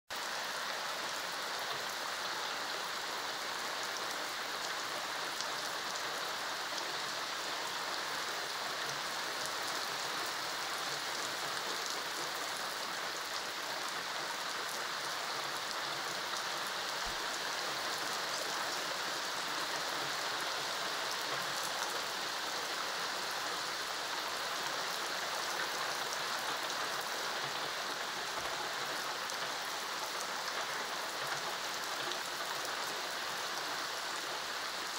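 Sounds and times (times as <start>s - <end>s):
heavy rain on paving: 0.1s - 34.9s.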